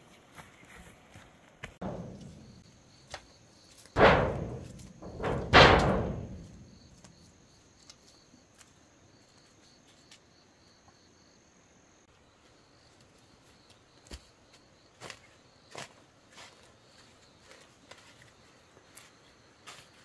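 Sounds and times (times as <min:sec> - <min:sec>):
loud crashes of collapsing building: 0:04.0 - 0:06.9.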